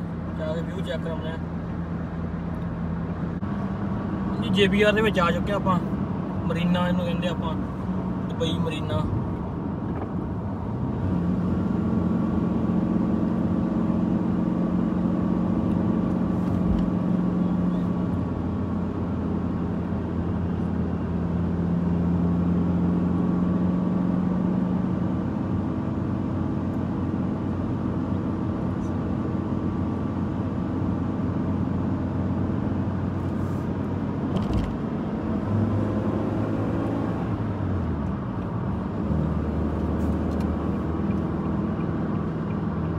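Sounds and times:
car engine and tyre hum: 0.0 - 42.9.

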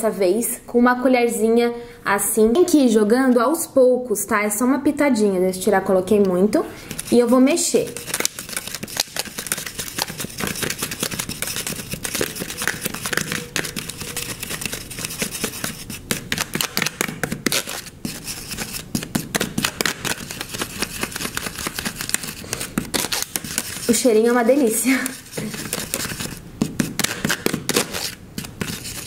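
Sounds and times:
spoon scraping plastic tub: 6.8 - 29.0.

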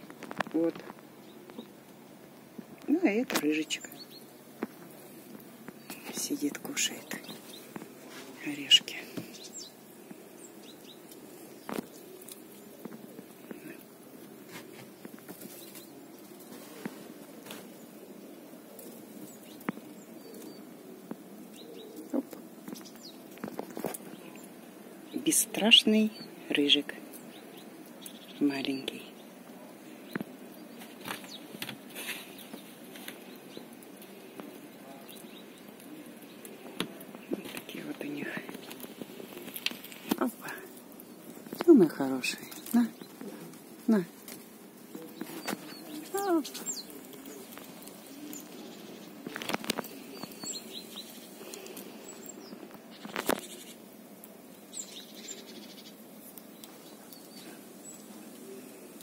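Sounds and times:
small birds chirping: 0.0 - 59.0
squirrel gnawing a nut: 29.9 - 59.0
squirrel cracking nut shell: 38.5 - 41.7.

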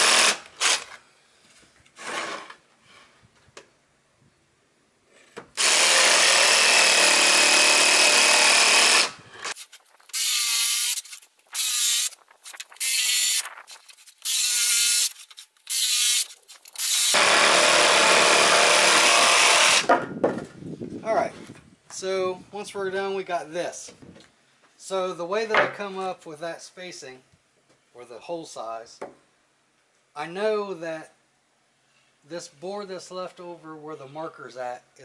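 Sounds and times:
jigsaw cutting plywood: 0.0 - 0.8, 5.6 - 19.9.

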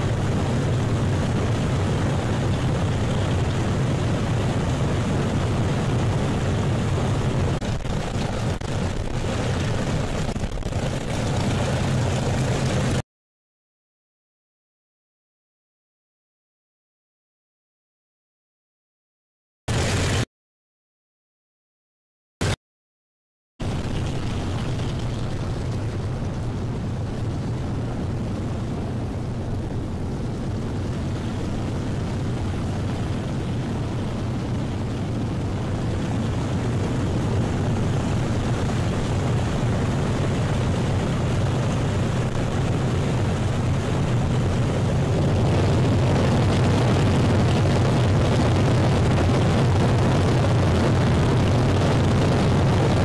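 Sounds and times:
aircraft piston engines droning: 0.0 - 13.0, 23.7 - 46.8.

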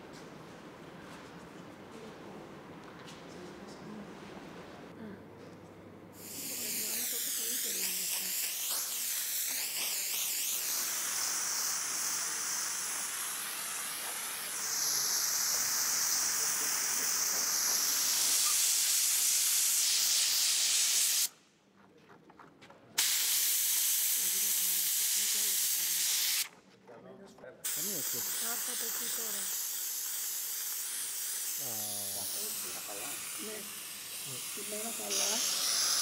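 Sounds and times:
steam cleaner hissing: 6.2 - 21.3, 23.0 - 26.5, 27.6 - 36.0.

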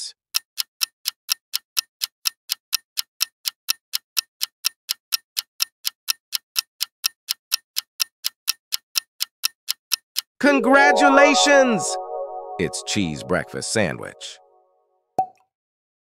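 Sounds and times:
clock ticking: 0.0 - 11.4.

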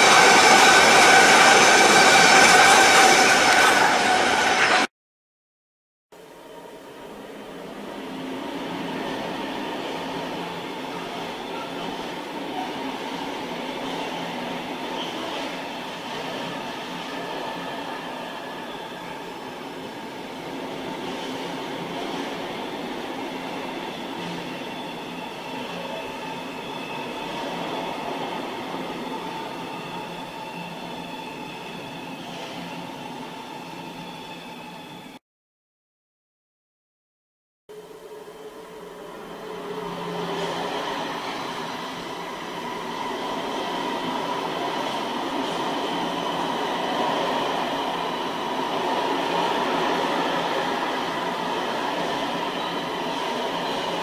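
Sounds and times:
high-pitched wheel squeal: 0.0 - 4.9.

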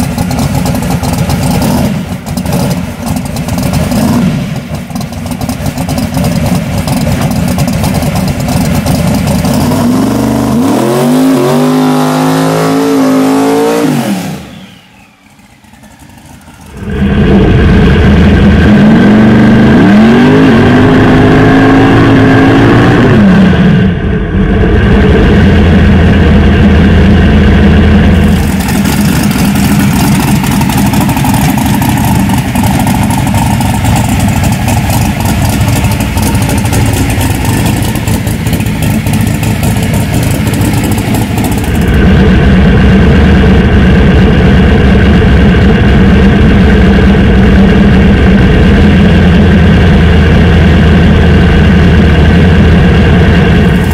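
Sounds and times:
truck engine revving: 0.0 - 53.9
hissing tyre spin: 9.5 - 18.2.

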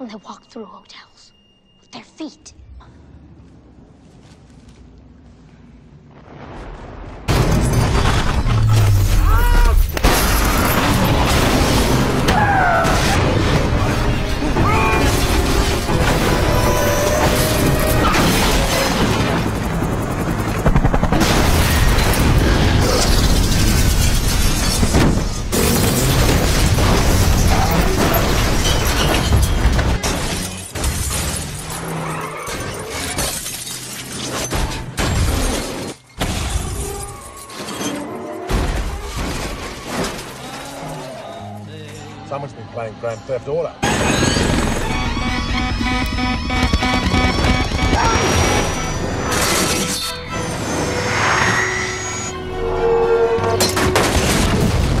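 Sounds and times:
glass shattering: 7.3 - 14.1, 21.5 - 38.0
cars crashing: 7.3 - 19.6, 21.2 - 36.8
dramatic music score: 10.7 - 23.1, 39.8 - 55.0
short rise-and-fall squeals: 44.0 - 53.6.

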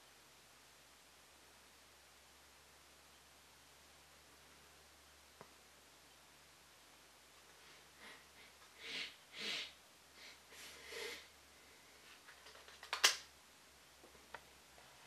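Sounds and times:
soft breaths through the nose: 7.4 - 12.2
small clicks: 12.2 - 13.3.

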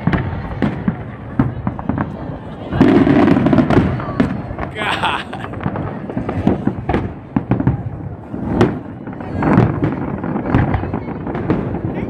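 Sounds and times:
fireworks bangs and crackling: 0.0 - 12.0.

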